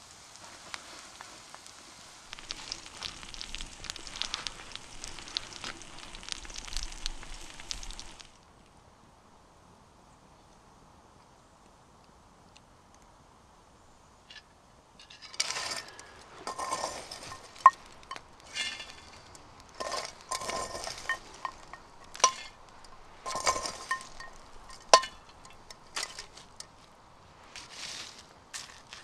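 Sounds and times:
metal cookware scraping and rattling: 15.0s - 26.7s.

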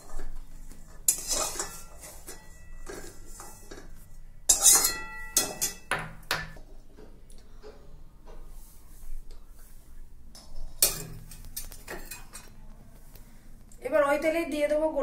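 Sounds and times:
metal spatula scraping a pan: 0.0s - 5.9s.

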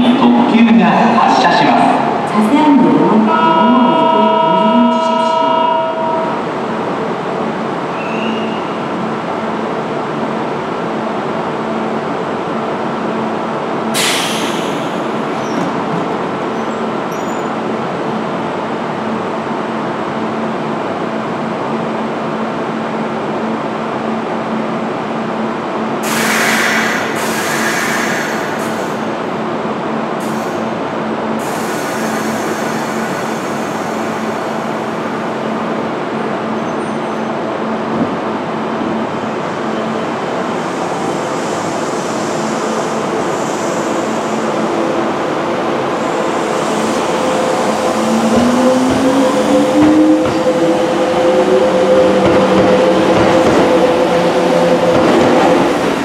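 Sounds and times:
train electric hum: 0.0s - 56.0s
air hissing from train: 14.0s - 15.4s, 26.0s - 29.2s, 30.2s - 30.8s, 31.4s - 35.2s, 40.5s - 48.3s.

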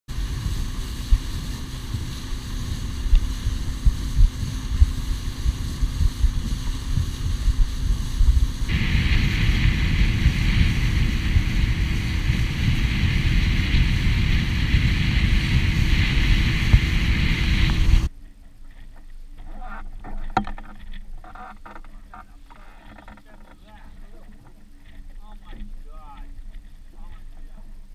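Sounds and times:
water rushing: 0.1s - 18.1s
wind buffeting microphone: 0.1s - 18.1s
outboard motor running: 0.1s - 27.9s.

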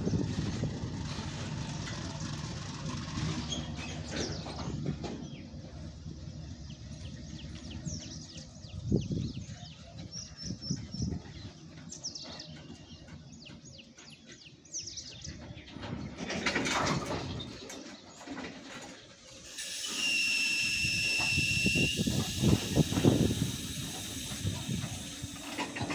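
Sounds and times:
freight wagons rumbling on rails: 0.0s - 25.9s
wheels clunking: 0.0s - 25.9s
train brakes hissing and squealing: 19.2s - 25.9s.

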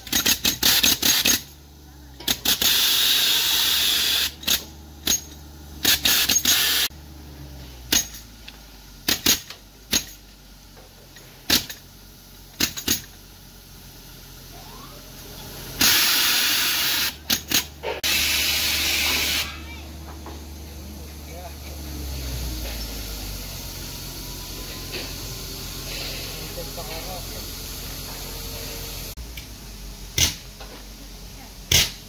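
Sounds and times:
air compressor engine drone: 0.0s - 32.0s
air gun hissing: 0.1s - 1.6s, 2.3s - 6.9s, 15.7s - 19.6s, 22.1s - 29.2s.

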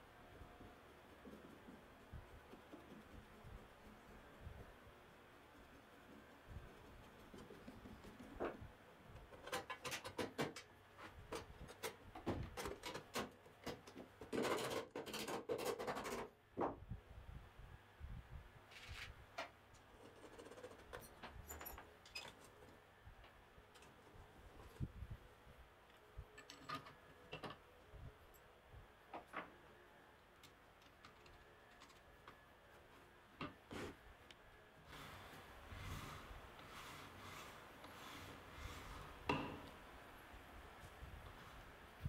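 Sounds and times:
small metal clicks and knocks: 9.2s - 10.7s.

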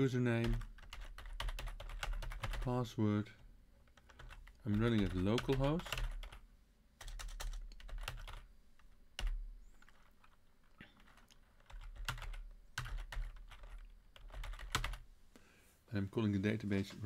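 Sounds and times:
computer keyboard typing: 0.4s - 2.8s, 3.8s - 6.4s, 7.0s - 15.0s.

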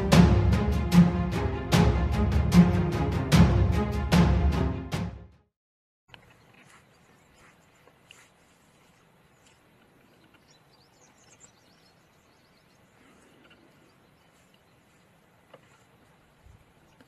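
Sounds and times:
faint bird chirps: 9.3s - 15.2s.

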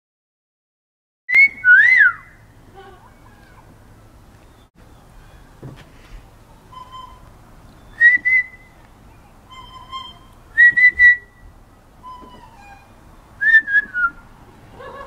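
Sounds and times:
person whistling short notes: 1.3s - 2.3s, 6.7s - 7.2s, 7.9s - 8.8s, 9.5s - 11.4s, 13.4s - 14.3s.

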